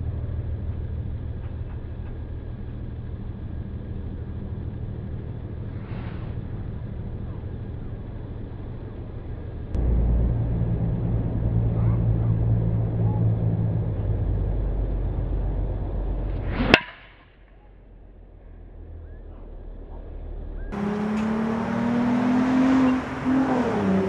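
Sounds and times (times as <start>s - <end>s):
steady low rumble: 0.0s - 20.8s
golf club striking ball: 16.5s - 17.2s.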